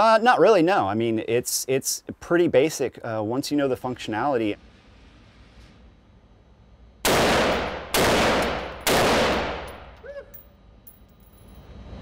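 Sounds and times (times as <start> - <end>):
rifle shots ringing indoors: 7.0 - 10.0.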